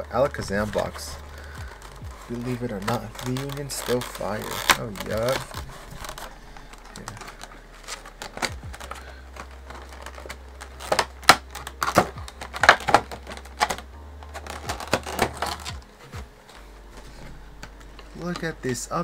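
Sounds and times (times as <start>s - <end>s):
cardboard and plastic packaging handled: 0.0s - 19.0s
packaging crinkling: 0.0s - 19.0s.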